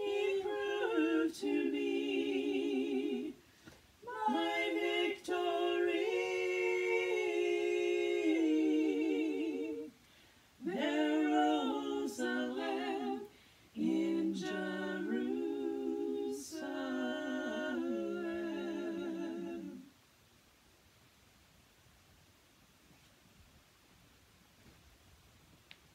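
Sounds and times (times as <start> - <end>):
women singing in harmony: 0.0 - 10.0, 10.6 - 20.0.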